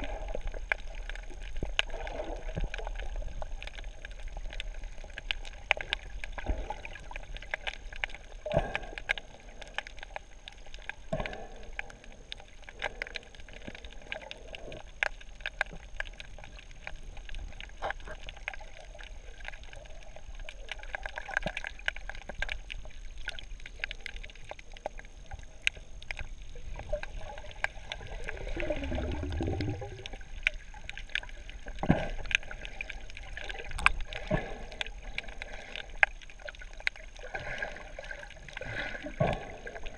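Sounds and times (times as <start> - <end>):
underwater clicks and crackles: 0.0 - 39.9
muffled underwater background: 8.2 - 10.4
diver exhaling bubbles: 8.4 - 9.4, 27.9 - 30.4, 38.6 - 39.9.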